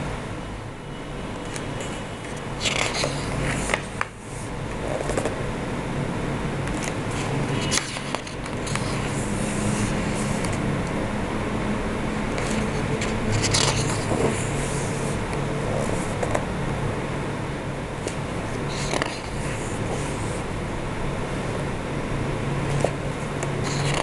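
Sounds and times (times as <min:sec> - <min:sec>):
steady low hum: 0:00.0 - 0:24.0
paper pages rustling: 0:01.5 - 0:05.4, 0:06.7 - 0:10.6, 0:12.3 - 0:16.4, 0:18.0 - 0:20.4, 0:22.7 - 0:24.0.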